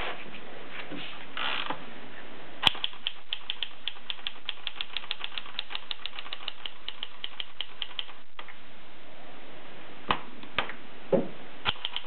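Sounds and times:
typewriter clacking: 2.7 - 8.2.

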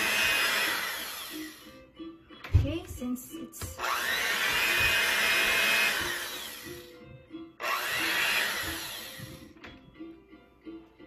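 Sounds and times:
electric hand mixer whisking: 0.0 - 1.7, 3.6 - 7.0, 7.6 - 9.6
soft background music: 0.0 - 11.0.

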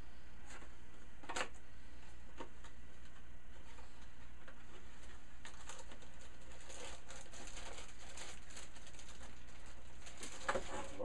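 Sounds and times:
steady low hum: 0.0 - 11.0
small crackles and taps: 2.3 - 10.8
packaging rustling and crinkling: 2.5 - 11.0.

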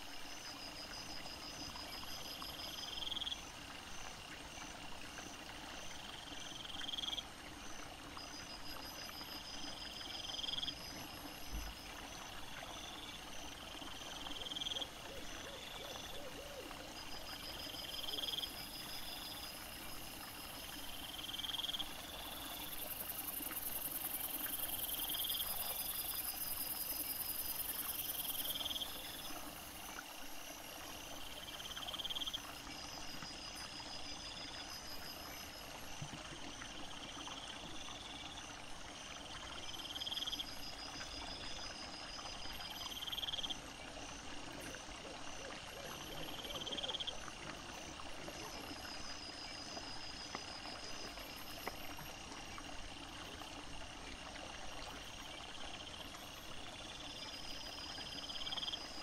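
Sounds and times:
insects chirping trills: 0.0 - 59.0
higher pulsing insect trill: 8.2 - 36.0.

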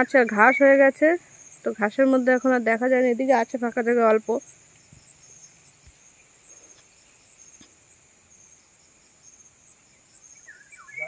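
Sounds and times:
insects chirring: 0.0 - 11.0.

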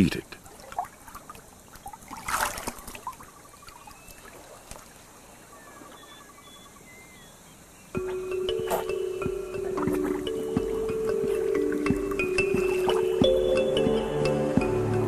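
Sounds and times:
water trickling and lapping: 0.0 - 15.0
water splash: 0.4 - 5.0.

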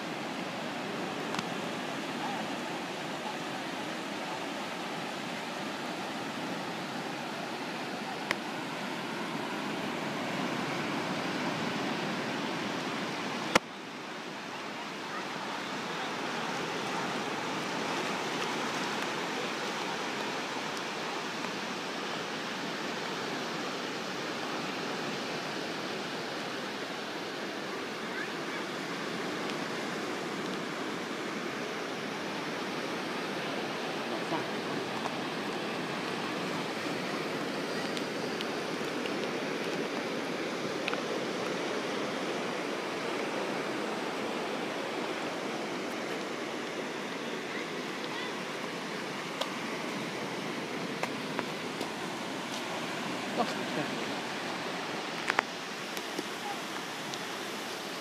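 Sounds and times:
surf breaking on sandy beach: 27.8 - 58.0.

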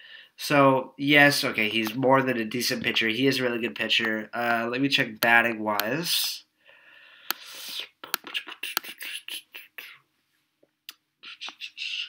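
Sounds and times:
soft breathy hiss: 6.1 - 10.5.

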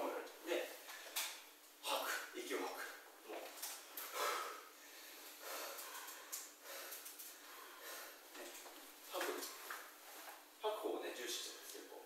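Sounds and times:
person breathing: 4.0 - 8.4.

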